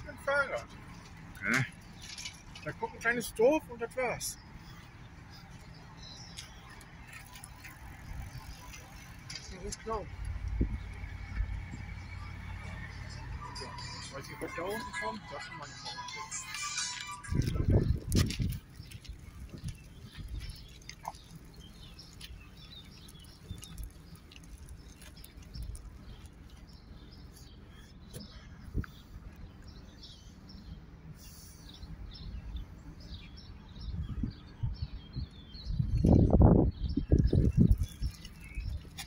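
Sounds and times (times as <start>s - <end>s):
small birds chirping: 0.0s - 39.0s
heavy low bumps: 7.6s - 15.0s, 17.2s - 26.2s.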